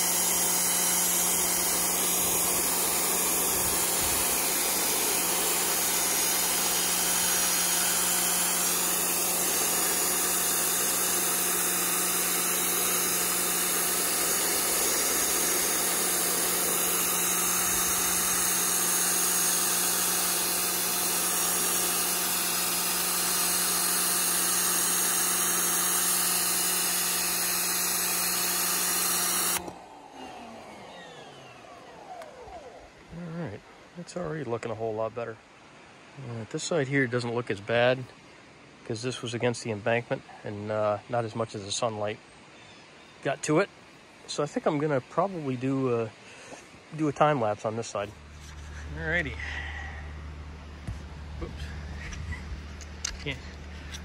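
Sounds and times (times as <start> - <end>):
pressure washer jet hissing: 0.0 - 30.6
motor hum: 0.0 - 34.0, 46.1 - 54.0.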